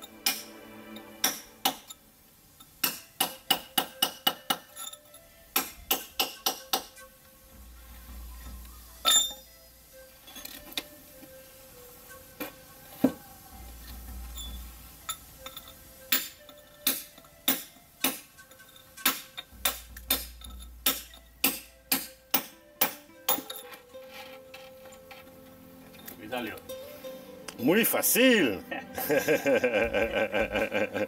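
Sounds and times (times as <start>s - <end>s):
hammer striking stone: 0.2s - 0.6s, 1.2s - 1.9s, 2.8s - 4.9s, 5.5s - 7.1s, 15.6s - 18.4s, 19.0s - 23.6s.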